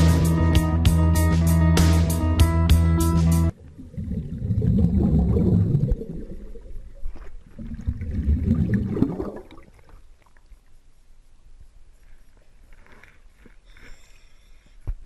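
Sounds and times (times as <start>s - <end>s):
underwater exhaled breath bubbles: 3.6s - 9.9s.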